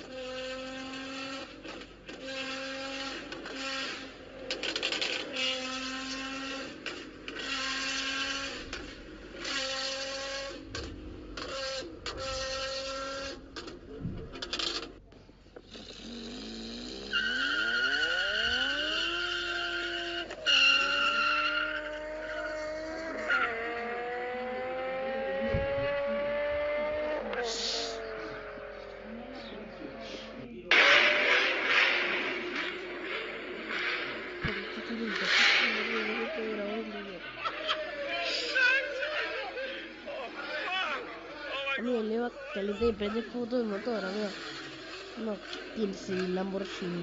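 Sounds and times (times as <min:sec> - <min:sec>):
high steady engine whine: 0:00.0 - 0:37.5
car accelerating hard: 0:00.0 - 0:41.7
car exhaust revving: 0:00.0 - 0:47.0.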